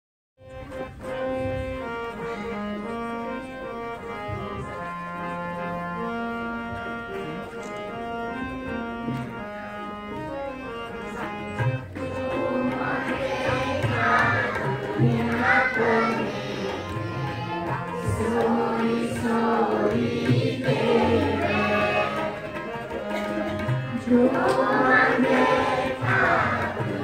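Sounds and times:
harmonium melody: 0.4 - 27.0
low tabla strokes: 6.4 - 27.0
voices singing: 12.0 - 27.0.

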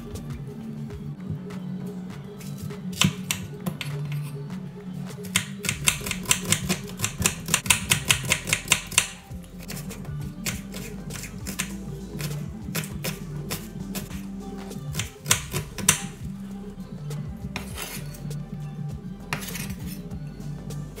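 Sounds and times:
knife chopping on cutting board: 5.2 - 14.2, 14.9 - 16.2, 19.3 - 19.9.

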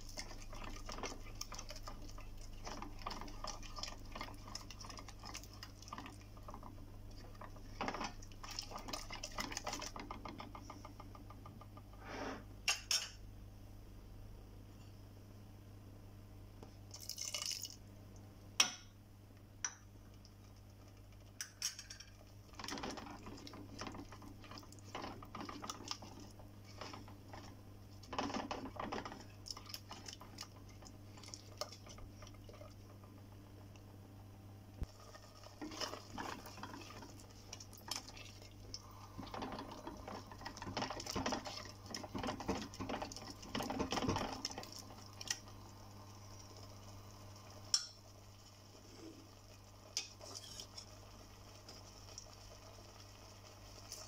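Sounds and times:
wooden spatula stirring gravy: 0.0 - 12.0, 22.1 - 33.9, 34.8 - 45.8, 49.3 - 54.0
liquid pouring into a pot: 16.9 - 17.8.

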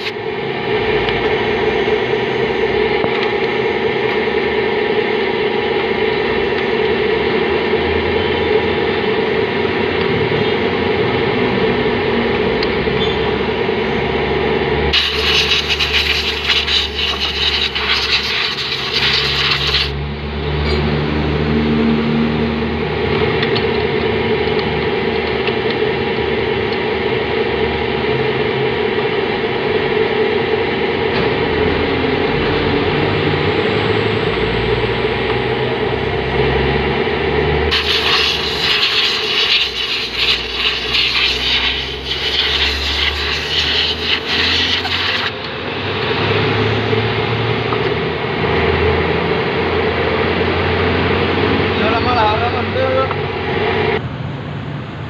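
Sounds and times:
steady mechanical hum: 0.0 - 55.0
loud hiss: 14.9 - 20.0, 37.7 - 45.3
paintbrush scrubbing wet parts: 15.0 - 20.0, 37.7 - 45.3.

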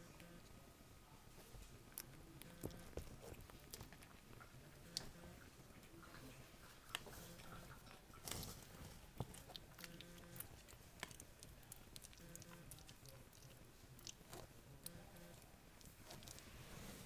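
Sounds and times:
soft rustles: 15.8 - 17.0.

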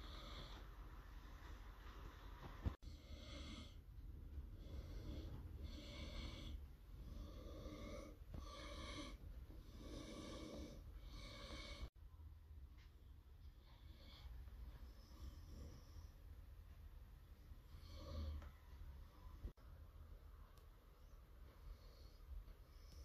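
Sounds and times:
person breathing: 0.0 - 1.9, 2.7 - 12.0
faint low hum: 0.0 - 23.0.

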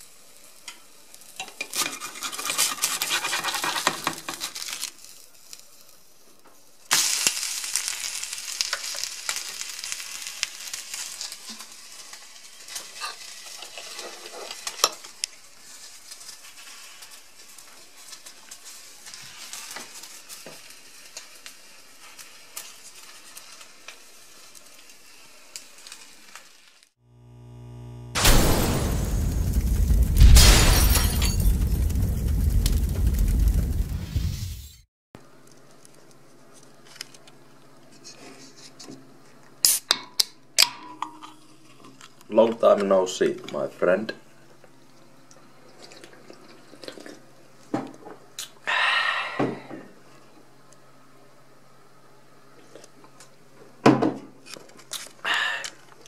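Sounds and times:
egg sizzling in a pan: 0.0 - 30.3, 31.5 - 34.8.

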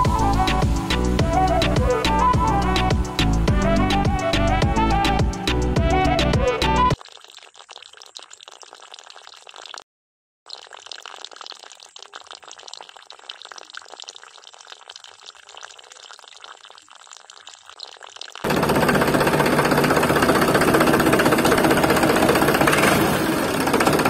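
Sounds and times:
water trickling into trough: 7.0 - 9.8, 10.5 - 19.0.

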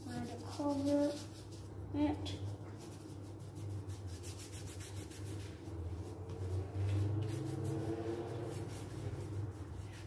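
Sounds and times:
paintbrush scrubbing on paper: 0.0 - 10.0.

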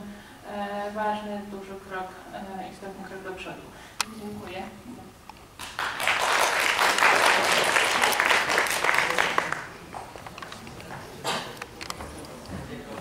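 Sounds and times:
audience applauding: 5.6 - 9.8.

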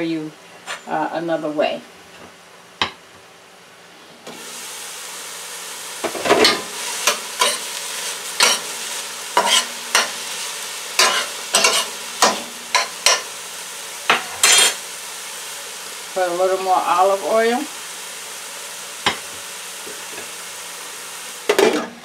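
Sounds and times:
vegetables sizzling in a pan: 4.3 - 22.0
metal utensil scraping a pan: 6.3 - 8.8, 9.4 - 10.3, 11.0 - 13.3, 14.1 - 14.8.

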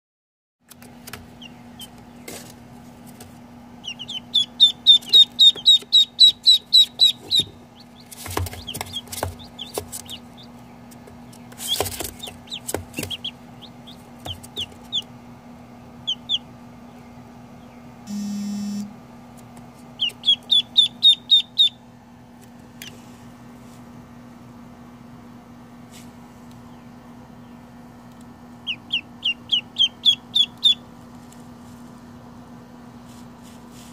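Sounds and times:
chicks and ducklings peeping: 0.7 - 18.0, 19.9 - 21.9, 26.5 - 31.8
low steady hum: 0.7 - 33.9
short buzz: 18.1 - 19.0.

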